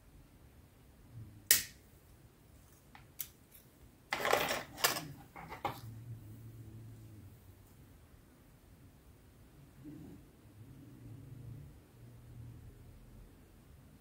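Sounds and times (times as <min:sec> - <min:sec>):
plastic parts scraping and rattling: 0:04.1 - 0:05.9.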